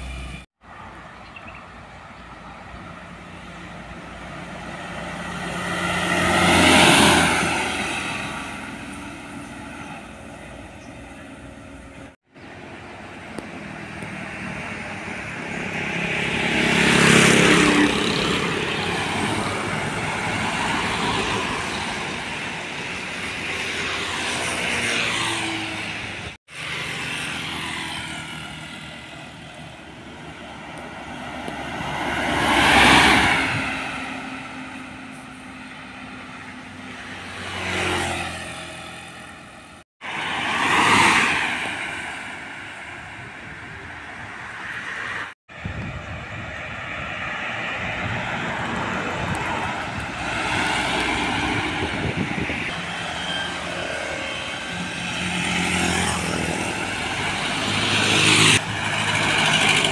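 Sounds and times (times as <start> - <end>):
trucks passing by: 0.0 - 59.9
motorcycles passing by: 2.4 - 59.9.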